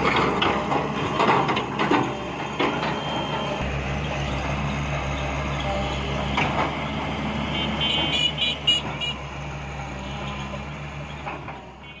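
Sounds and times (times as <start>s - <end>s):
excavator diesel engine running: 0.0s - 11.9s.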